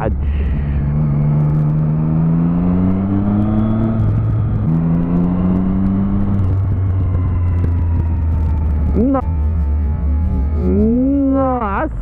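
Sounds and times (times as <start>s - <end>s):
motorcycle engine accelerating: 0.0s - 11.8s
steady low rumble: 0.0s - 12.0s.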